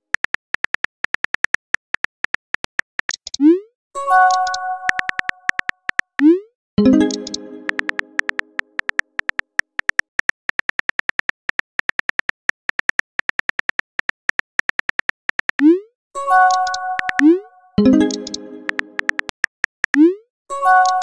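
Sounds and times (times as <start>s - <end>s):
message chime: 4.0s - 5.4s, 6.8s - 8.3s, 16.2s - 19.2s
keyboard tap clicks: 4.3s - 15.6s, 16.5s - 20.0s.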